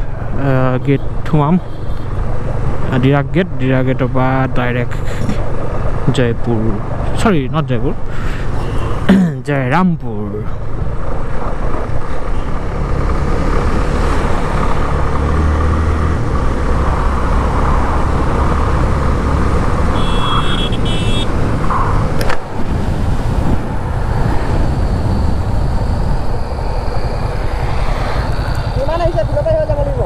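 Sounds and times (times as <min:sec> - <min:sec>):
wind rushing over camera: 0:10.6 - 0:20.0, 0:20.7 - 0:30.0
motorcycle engine cruising: 0:10.6 - 0:30.0
sharp click: 0:22.2 - 0:22.4.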